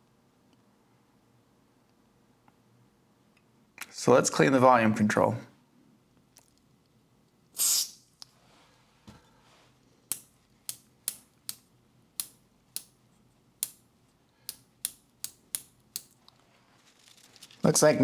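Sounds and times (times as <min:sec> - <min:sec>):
spray can hiss: 0:07.6 - 0:08.0.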